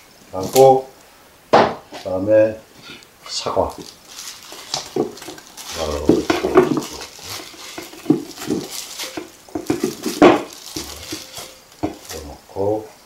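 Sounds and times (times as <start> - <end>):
fruit pieces clattering into container: 3.7 - 12.4
metal bowl rattling: 3.7 - 12.4.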